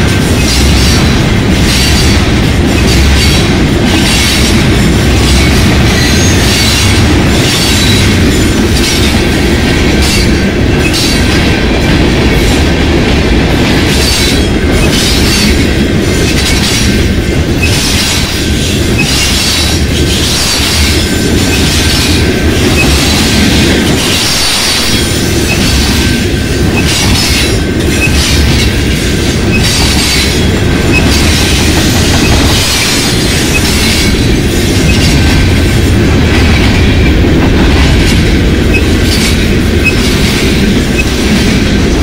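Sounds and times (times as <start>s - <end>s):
freight cars rolling on rails: 0.0s - 42.0s.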